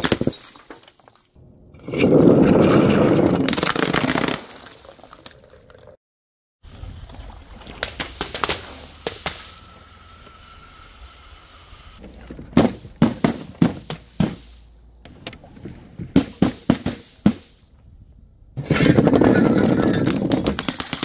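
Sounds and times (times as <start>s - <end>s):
faint steady whine: 8.8s - 12.0s.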